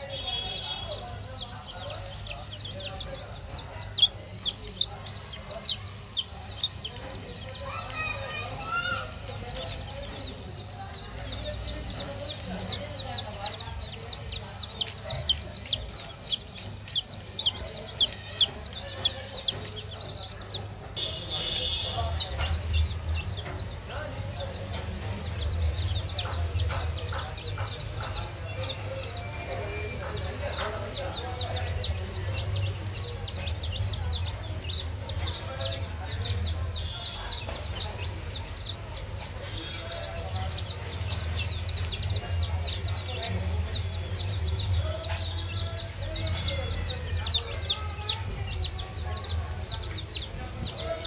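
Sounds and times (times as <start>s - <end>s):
baby chicks peeping: 0.0s - 51.0s.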